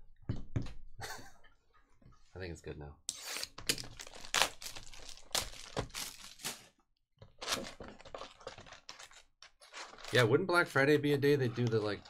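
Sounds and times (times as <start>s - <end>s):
plastic wrap crinkling and tearing: 3.6s - 6.8s, 7.4s - 10.5s.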